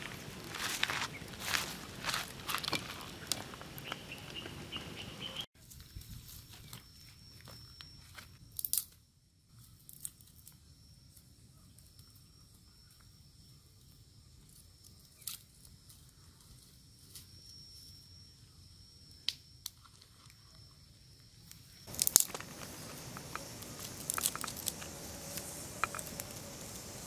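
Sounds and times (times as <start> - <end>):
faint steady high tone: 6.1 - 9.8, 16.0 - 27.0
dry wood snapping: 8.6 - 8.9, 21.9 - 27.0.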